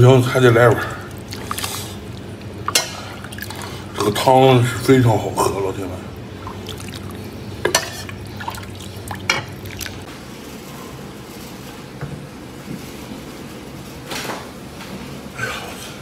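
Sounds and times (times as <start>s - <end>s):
liquid splashing and trickling: 0.8s - 3.9s, 6.2s - 10.1s.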